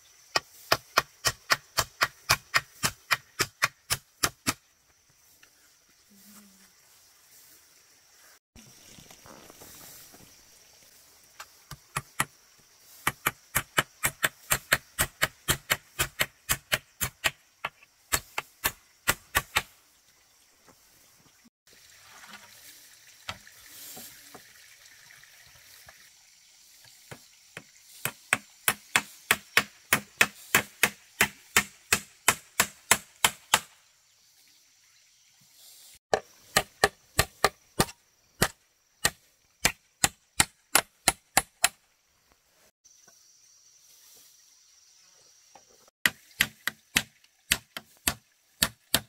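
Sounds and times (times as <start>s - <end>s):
sharp chopping strikes: 0.3s - 4.6s, 13.0s - 19.7s, 28.0s - 33.8s, 36.1s - 41.8s, 46.0s - 49.0s.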